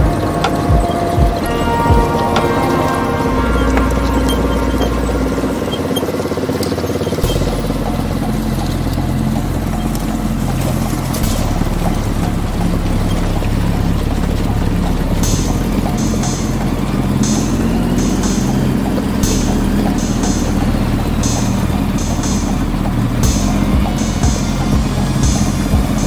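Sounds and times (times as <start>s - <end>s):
quad bike engine running: 4.6s - 26.0s.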